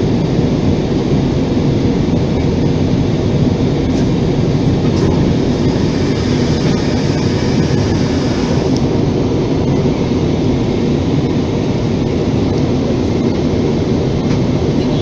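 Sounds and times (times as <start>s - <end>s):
jet airliner cabin noise: 0.0s - 15.0s.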